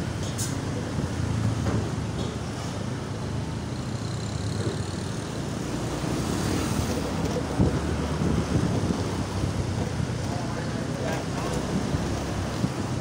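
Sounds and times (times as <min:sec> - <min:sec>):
scooter engine running: 0:03.0 - 0:11.8
tyre and wind noise: 0:04.4 - 0:13.0.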